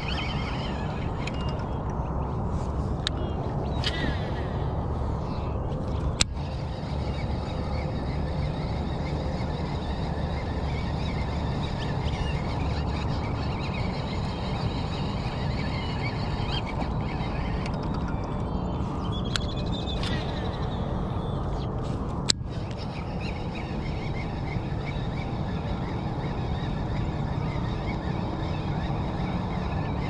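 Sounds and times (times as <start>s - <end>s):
bird chirps: 0.0s - 1.8s, 6.4s - 21.7s.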